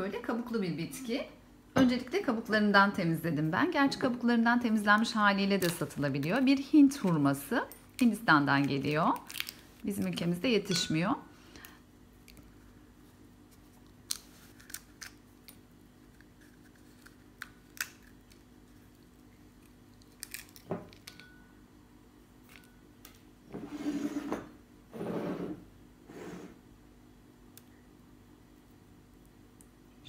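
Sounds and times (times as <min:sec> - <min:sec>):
faint steady hum: 0:00.0 - 0:30.0
dried pod shells cracking: 0:07.8 - 0:10.1, 0:13.8 - 0:21.3.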